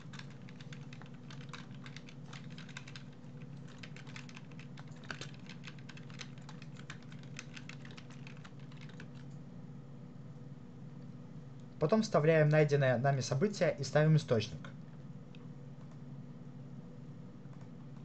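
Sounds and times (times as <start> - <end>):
keyboard typing: 0.0 - 9.4.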